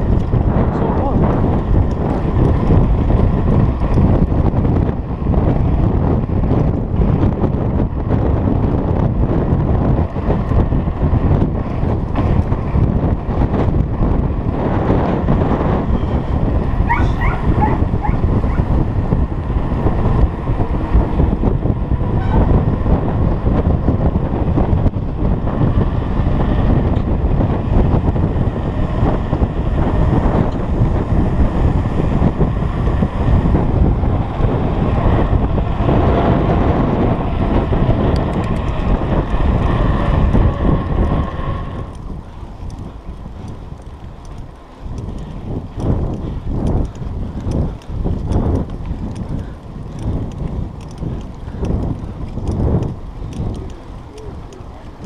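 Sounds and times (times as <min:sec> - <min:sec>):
bike rattles: 0:00.0 - 0:55.0
wind buffeting microphone: 0:00.0 - 0:55.0.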